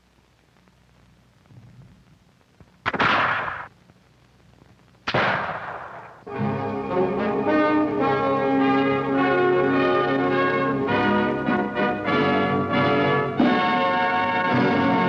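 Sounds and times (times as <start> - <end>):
loud gunshots: 2.8 - 3.7, 5.1 - 6.2
film music: 6.3 - 15.0.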